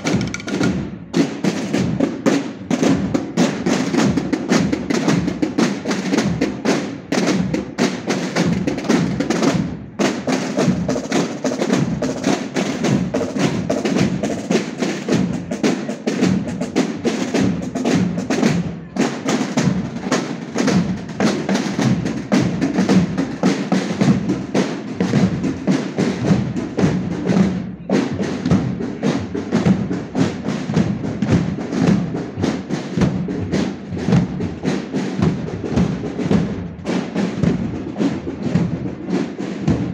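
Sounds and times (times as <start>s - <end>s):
bass drums: 0.0s - 7.8s, 19.6s - 39.9s
snare drums: 0.0s - 39.9s.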